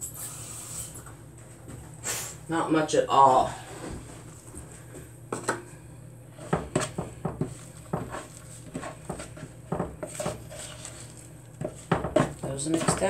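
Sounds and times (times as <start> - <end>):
fork scraping mixing bowl: 6.4 - 13.0.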